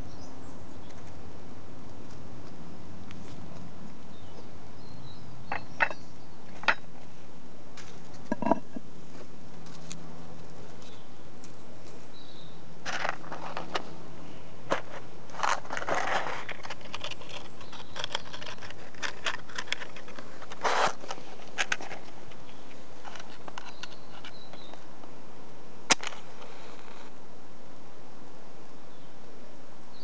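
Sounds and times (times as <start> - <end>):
hands handling objects: 7.8 - 12.0, 14.7 - 24.4.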